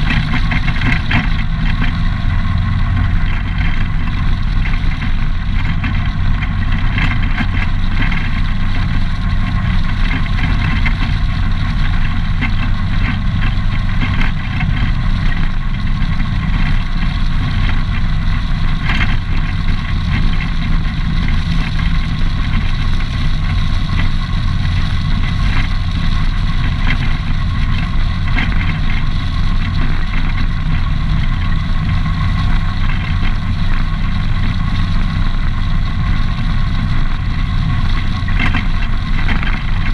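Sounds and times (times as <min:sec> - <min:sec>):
atv engine running: 0:00.0 - 0:39.9
tyres rolling over gravel: 0:00.0 - 0:39.9.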